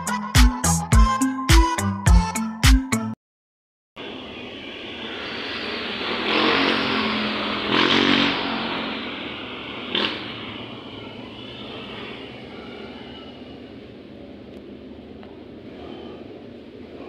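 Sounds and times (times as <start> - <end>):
vehicle passing on wet street: 5.2 - 14.5.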